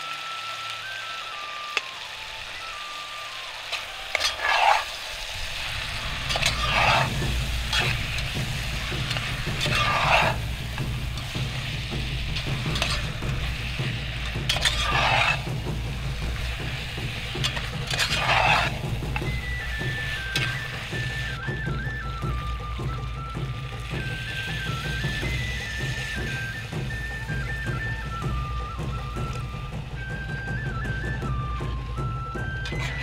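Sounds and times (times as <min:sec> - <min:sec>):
vegetables frying and sizzling: 0:00.0 - 0:33.0
metal spatula scraping a pot: 0:03.7 - 0:05.0, 0:06.2 - 0:15.8, 0:17.1 - 0:20.8
steady low rumble: 0:05.2 - 0:21.4.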